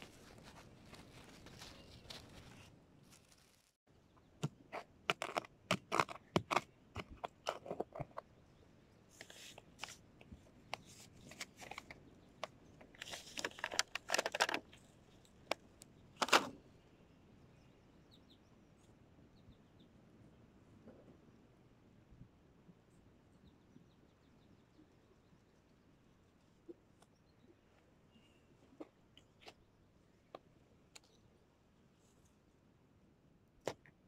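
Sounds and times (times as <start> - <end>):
hands scraping garden soil: 4.4 - 8.2.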